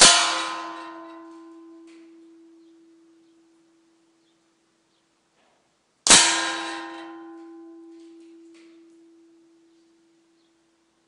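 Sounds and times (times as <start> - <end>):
steel ringing: 0.0 - 3.8, 6.1 - 10.5.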